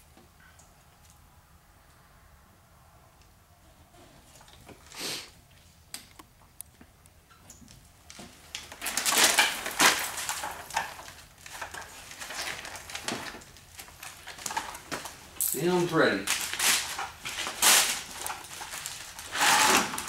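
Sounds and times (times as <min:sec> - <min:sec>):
short hiss: 0:04.9 - 0:05.4
plastic film crackling: 0:08.0 - 0:20.0.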